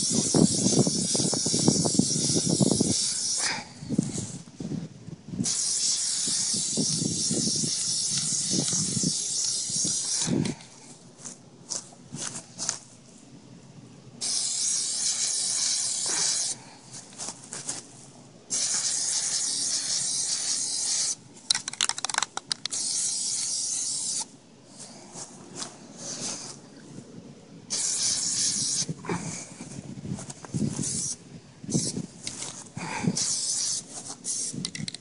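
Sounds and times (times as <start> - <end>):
spray can clicking and sputtering: 0.0 - 3.4, 5.4 - 10.6, 14.2 - 16.6, 18.5 - 24.3, 27.7 - 28.9, 30.8 - 32.6, 33.2 - 35.0
aerosol spray can hissing: 0.0 - 3.5, 5.4 - 10.6, 14.2 - 16.6, 18.5 - 21.2, 22.7 - 24.3, 27.7 - 28.9, 30.7 - 32.0, 33.2 - 34.8.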